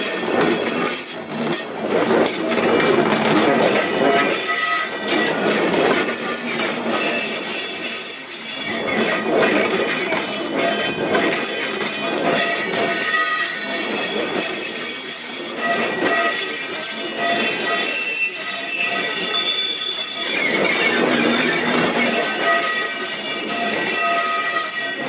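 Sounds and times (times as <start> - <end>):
freight wagons rumbling on rails: 0.0 - 25.0
wheels squealing: 0.0 - 25.0.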